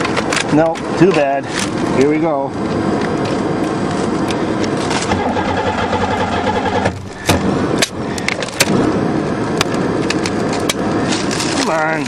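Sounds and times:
steady electrical hum: 0:00.0 - 0:12.0
ignition sharp clicks: 0:05.0 - 0:08.8.

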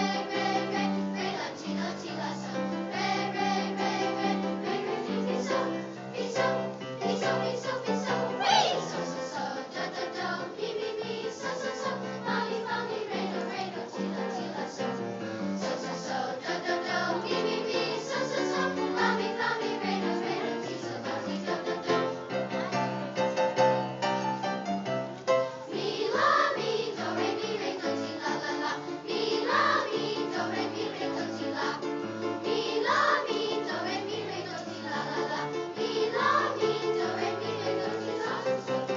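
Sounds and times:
children's choir singing: 0:00.0 - 0:24.4, 0:25.3 - 0:38.9
instrumental accompaniment: 0:21.3 - 0:38.7.

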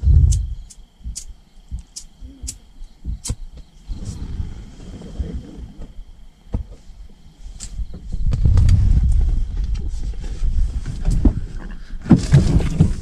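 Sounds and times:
sharp clicks: 0:00.2 - 0:02.6.

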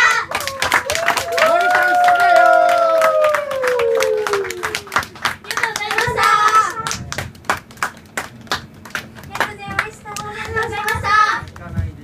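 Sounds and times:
audience clapping: 0:00.0 - 0:11.9.

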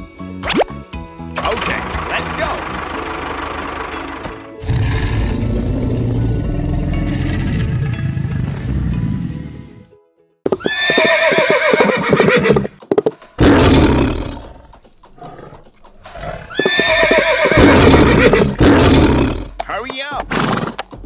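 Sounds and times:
background music: 0:00.0 - 0:21.0
horse whinnying: 0:10.6 - 0:12.8, 0:15.2 - 0:19.5.

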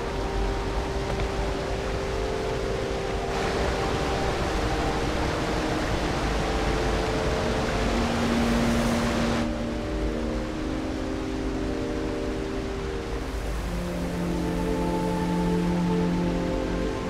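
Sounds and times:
falling water rushing: 0:00.0 - 0:17.0
long held ambient notes: 0:00.0 - 0:17.0.

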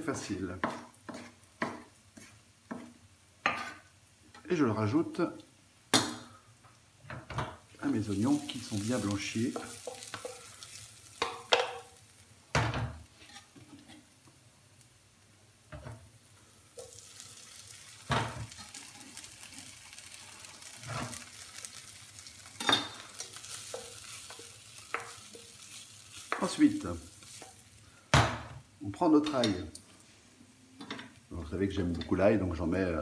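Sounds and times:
wooden spoon stirring in pan: 0:00.0 - 0:04.6, 0:07.1 - 0:12.2, 0:12.9 - 0:14.4, 0:16.7 - 0:27.9
faint sizzle in oil: 0:00.0 - 0:33.0.

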